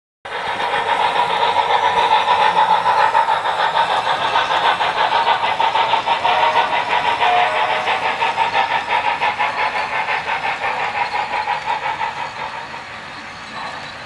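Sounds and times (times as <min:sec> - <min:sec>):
model steam locomotive chuffing: 0:00.3 - 0:14.0.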